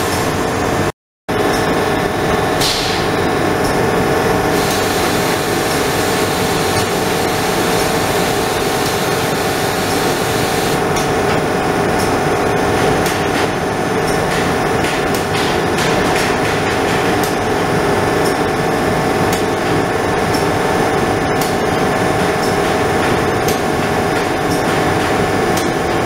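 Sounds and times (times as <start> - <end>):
laser cutting machine humming: 0.0 - 14.6.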